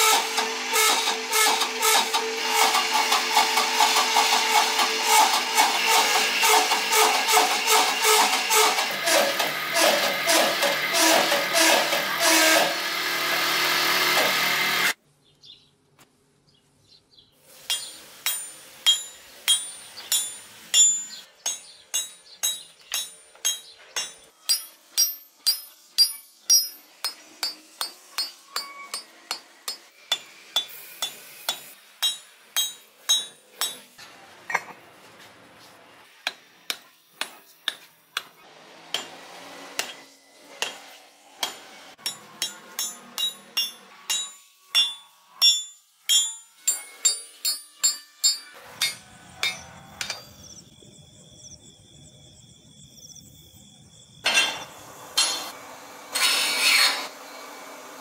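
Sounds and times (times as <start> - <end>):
hammer striking metal on anvil: 17.6 - 34.0, 36.2 - 50.4, 54.2 - 55.5.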